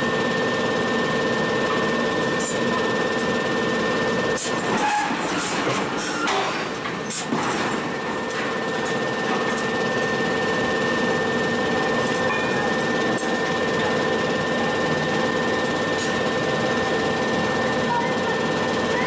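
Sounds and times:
heavy machinery humming: 0.0 - 19.0.

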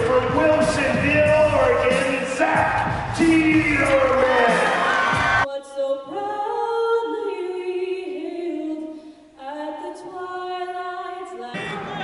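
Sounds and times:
crowd noise: 0.0 - 5.5, 11.5 - 12.0
woman singing a cappella: 5.5 - 11.8.

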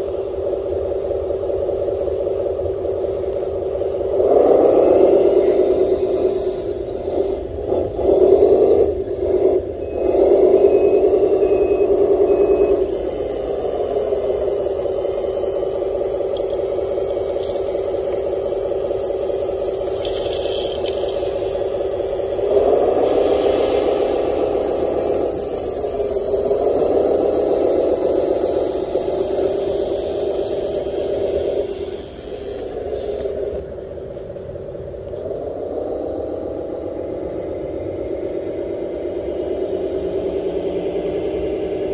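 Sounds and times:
motor and hydraulic pump whine: 0.0 - 41.9
gravel rattling and scraping: 19.5 - 21.6.

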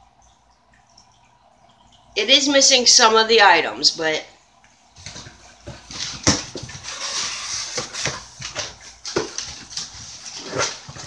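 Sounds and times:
sharp knocks and scrapes: 5.0 - 11.0.

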